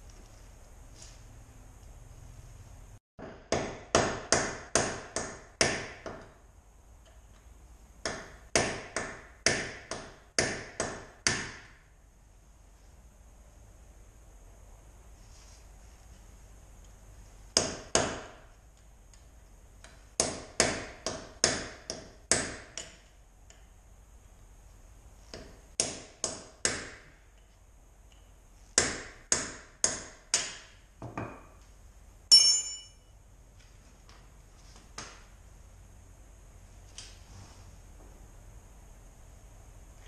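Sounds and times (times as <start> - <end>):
loud metallic clang: 32.3 - 33.0
hammer striking metal tool: 32.3 - 33.1.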